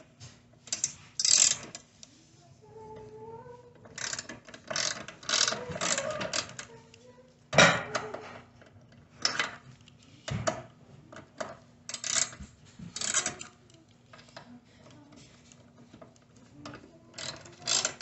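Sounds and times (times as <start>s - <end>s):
ratchet wrench clicking: 0.7s - 1.8s, 3.9s - 6.7s, 11.9s - 12.4s, 13.0s - 13.5s, 17.1s - 18.0s.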